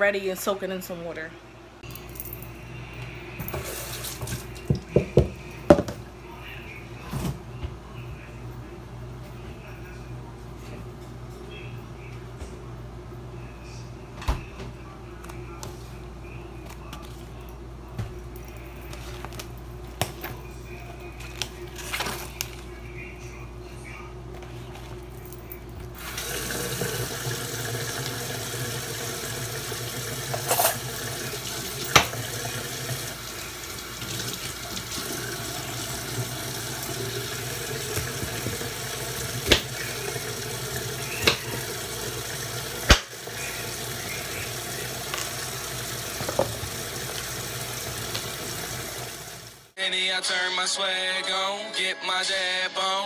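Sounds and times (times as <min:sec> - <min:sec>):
tap running into metal sink: 0:31.8 - 0:32.3, 0:46.1 - 0:47.3.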